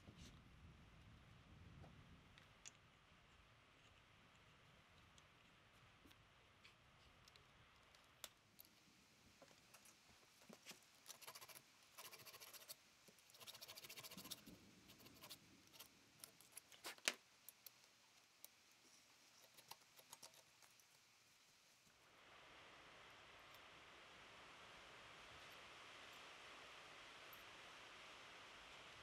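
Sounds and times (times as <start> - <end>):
wire brush wheel clicking and scratching: 9.6 - 21.1.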